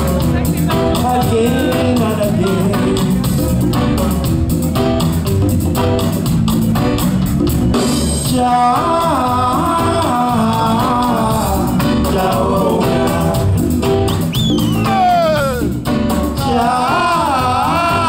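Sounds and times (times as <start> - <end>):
lead melody line: 0.0 - 18.0
reggae band playing live: 0.0 - 18.0.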